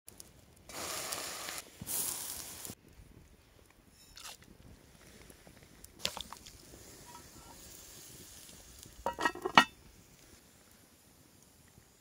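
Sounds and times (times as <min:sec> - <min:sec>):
iron lid clanking on pot: 0:09.0 - 0:09.7.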